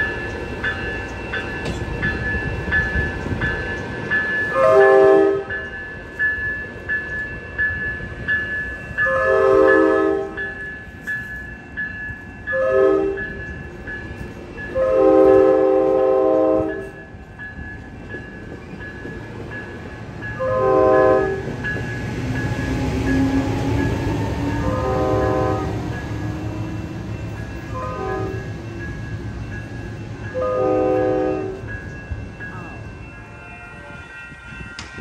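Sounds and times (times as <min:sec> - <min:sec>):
crossing bell ringing: 0:00.0 - 0:35.0
train rumble: 0:00.0 - 0:35.0
locomotive air horn blasts: 0:04.5 - 0:05.5, 0:09.0 - 0:10.4, 0:12.5 - 0:13.2, 0:14.7 - 0:16.9, 0:20.4 - 0:21.4, 0:24.4 - 0:26.6, 0:27.7 - 0:28.4, 0:30.4 - 0:31.6.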